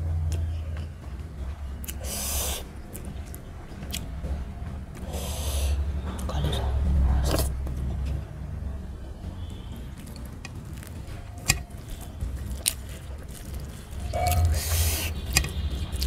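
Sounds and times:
steady low hum: 0.0s - 16.0s
wet mouth clicks and chewing: 0.2s - 0.9s, 1.7s - 8.2s, 9.3s - 16.0s
sharp breathy sniffs: 2.0s - 2.7s, 5.0s - 5.8s, 14.5s - 15.2s
fingers working food on steel plate: 9.1s - 16.0s.

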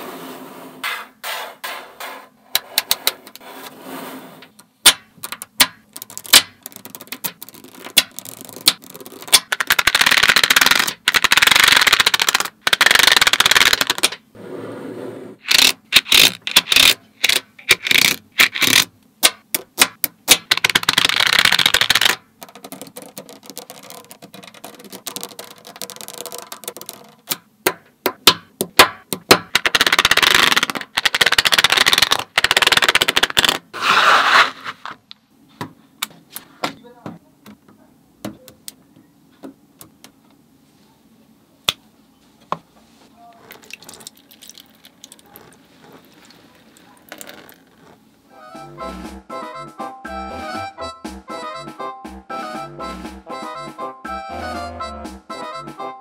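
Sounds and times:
magnetic balls clicking together: 4.6s - 14.2s, 15.4s - 33.6s, 43.5s - 48.0s
magnetic balls rattling scrape: 20.5s - 27.3s, 43.5s - 48.0s.

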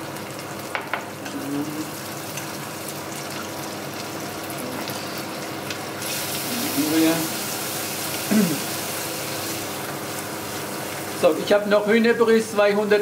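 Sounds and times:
onion sizzling in a frying pan: 0.0s - 13.0s.

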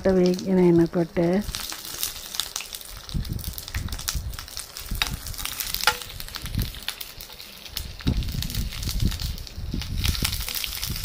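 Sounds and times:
garlic sizzling in hot oil: 0.0s - 11.0s
spoon stirring in pan: 5.0s - 8.0s.

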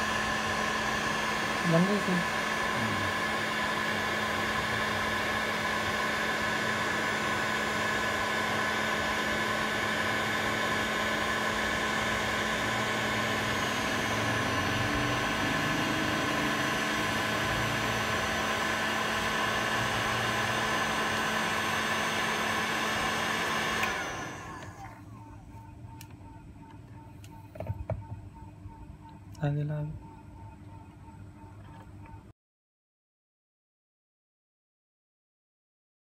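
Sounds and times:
hot air blower rushing with whine: 0.0s - 25.6s.

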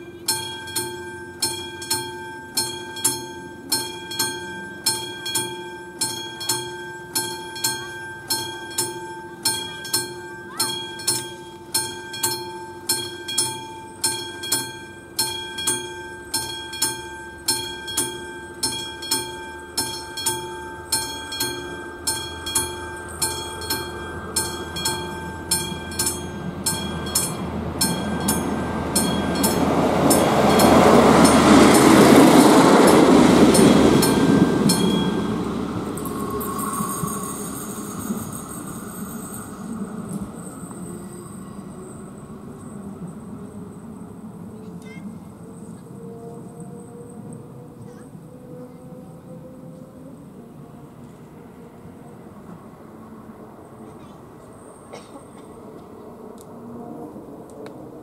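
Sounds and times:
level crossing bell ringing: 0.0s - 43.2s
train rumbling: 0.0s - 58.0s.

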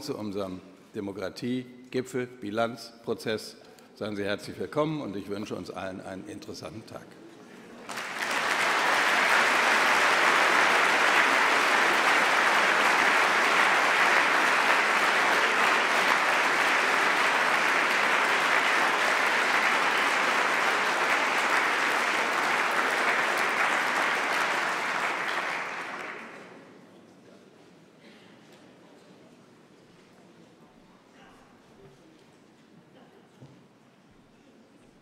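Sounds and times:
audience applauding: 7.8s - 26.6s.

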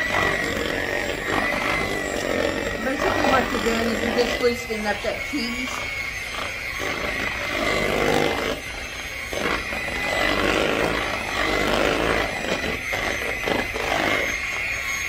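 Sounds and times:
beaters churning cream cheese: 0.0s - 15.0s
electric mixer whining: 0.0s - 15.0s.

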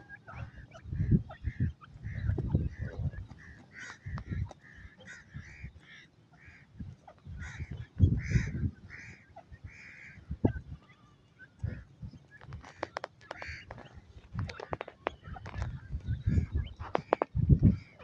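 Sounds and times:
francolins calling: 0.0s - 18.0s
low rumbles on the microphone: 0.5s - 5.6s, 6.8s - 9.0s, 13.5s - 18.0s.

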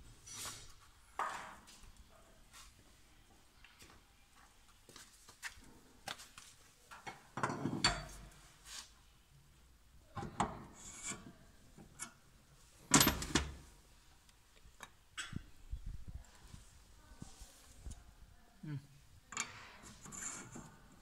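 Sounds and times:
metal clunks and scraping: 7.0s - 8.4s, 10.1s - 12.1s, 19.4s - 20.8s.

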